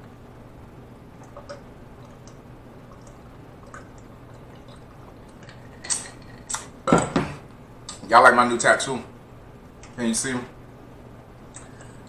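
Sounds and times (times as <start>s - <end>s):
person gulping a drink: 1.2s - 7.1s.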